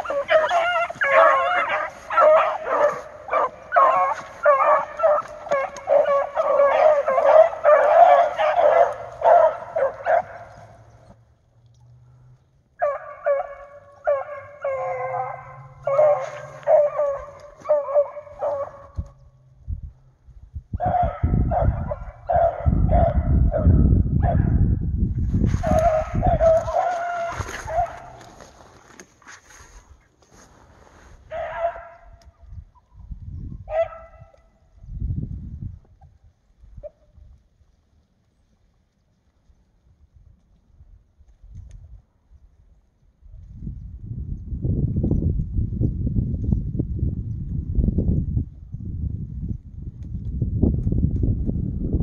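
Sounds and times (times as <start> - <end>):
dogs baying and barking: 0.0 - 11.2, 12.8 - 19.2, 20.8 - 24.6, 25.5 - 28.8, 31.3 - 32.2, 33.6 - 34.5.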